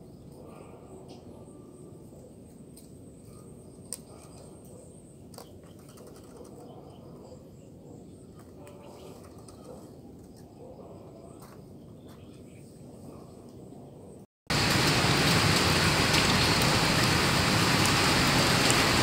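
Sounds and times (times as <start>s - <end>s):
outdoor hiss: 14.5s - 19.0s.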